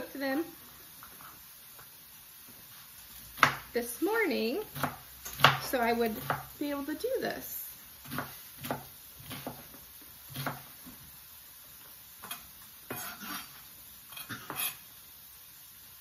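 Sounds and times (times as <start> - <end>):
knife chopping on cutting board: 3.4 - 3.7, 4.7 - 6.5, 8.0 - 9.7, 10.3 - 10.7, 12.2 - 13.4.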